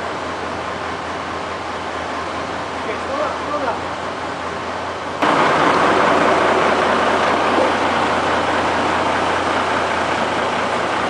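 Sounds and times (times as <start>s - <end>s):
heavy vehicle engine idling: 0.0s - 11.0s.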